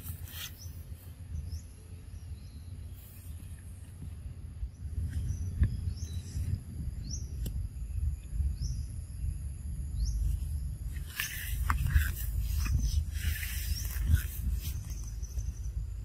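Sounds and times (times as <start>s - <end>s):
rustling: 10.9s - 15.6s.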